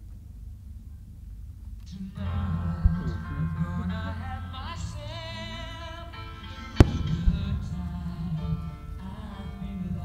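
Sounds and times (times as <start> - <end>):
music with wavering melody: 2.2 - 10.0.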